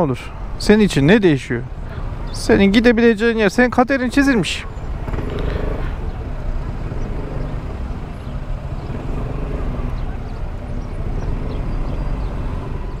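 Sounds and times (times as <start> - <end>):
surrounding traffic: 0.0 - 13.0
scooter engine low rumble: 4.0 - 13.0.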